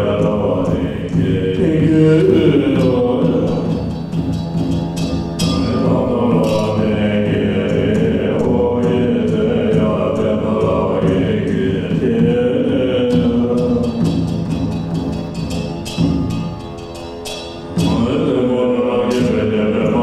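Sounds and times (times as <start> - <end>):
voices chanting mantra: 0.0 - 4.3, 5.4 - 14.3, 17.8 - 20.0
steady low drone: 0.0 - 14.3.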